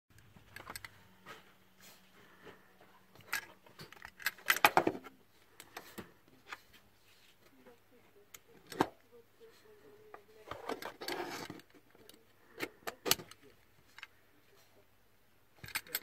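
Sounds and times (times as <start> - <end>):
plastic scraping rustle: 10.4 - 11.8.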